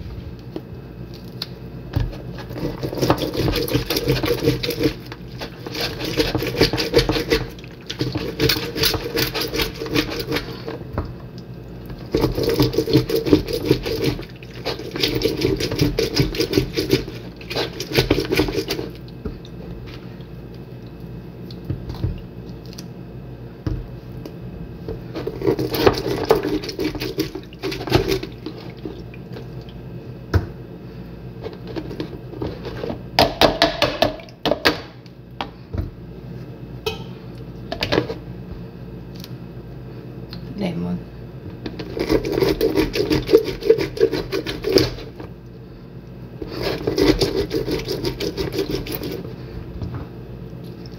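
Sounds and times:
orange rasping on citrus reamer: 0:41.8 - 0:45.0, 0:46.4 - 0:49.2.

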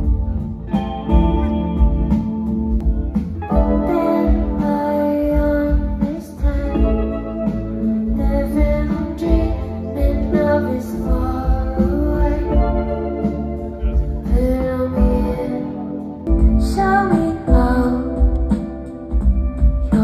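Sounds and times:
deep pulsing bass line: 0:00.0 - 0:15.5, 0:16.2 - 0:20.0
sustained keyboard chords: 0:00.0 - 0:20.0
woman singing: 0:03.5 - 0:13.5, 0:14.2 - 0:19.2.

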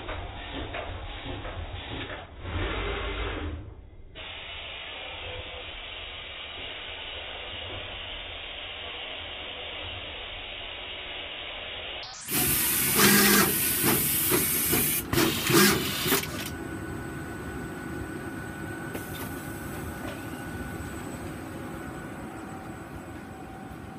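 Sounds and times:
machine running noise: 0:12.0 - 0:23.9.

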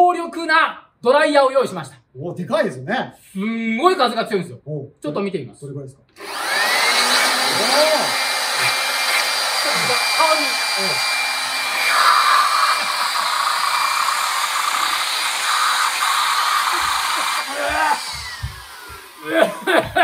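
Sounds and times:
electric blower whine and air rush: 0:06.2 - 0:20.0.

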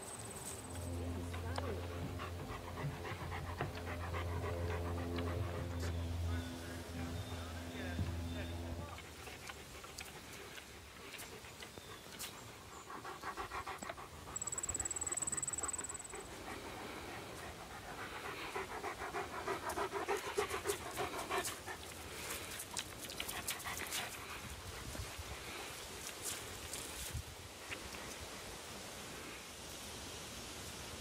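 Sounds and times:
dog panting: 0:00.7 - 0:26.5.

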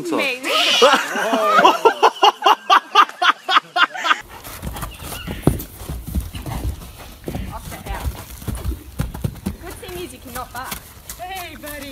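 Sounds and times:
person laughing hard: 0:00.6 - 0:04.2.

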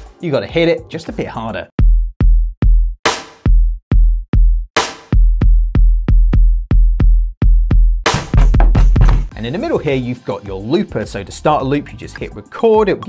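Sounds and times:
electronic bass drum hits: 0:08.0 - 0:09.3
electronic snare hits: 0:08.1 - 0:09.3.

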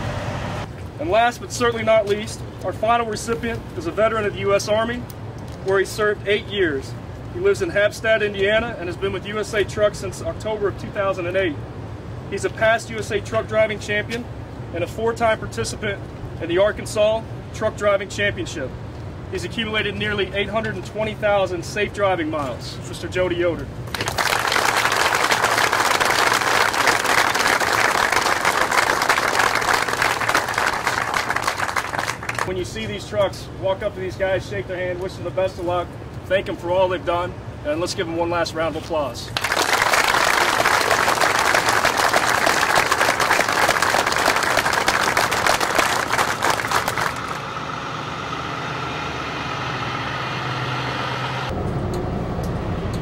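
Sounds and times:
truck engine idling: 0:23.8 - 0:32.8, 0:39.4 - 0:53.0
crowd applauding: 0:23.9 - 0:32.5, 0:39.4 - 0:47.4.

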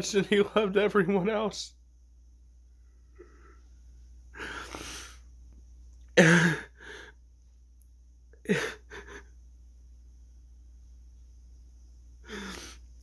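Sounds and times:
man sobbing: 0:06.2 - 0:07.1, 0:08.4 - 0:09.4.

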